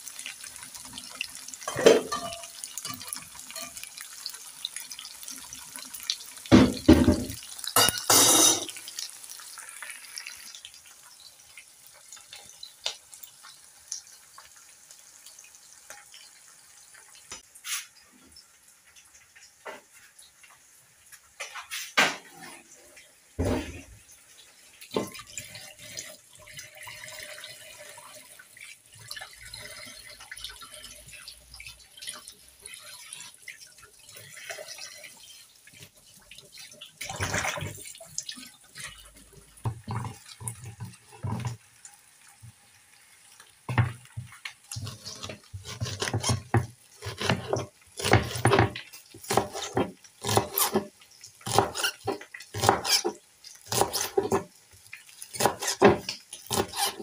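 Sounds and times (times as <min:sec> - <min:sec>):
kitchen tap running: 0:00.0 - 0:57.0
knife chopping on wooden board: 0:44.8 - 0:50.9, 0:51.5 - 0:53.1.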